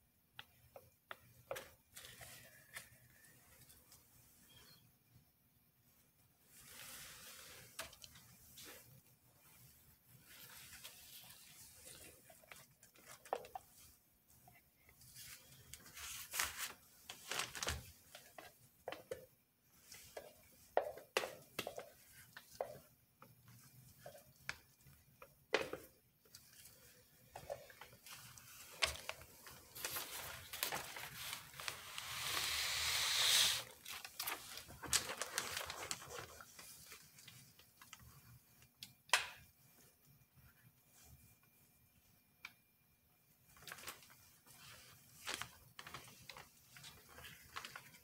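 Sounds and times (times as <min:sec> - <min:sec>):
hiss-like noise: 0:31.6 - 0:33.8.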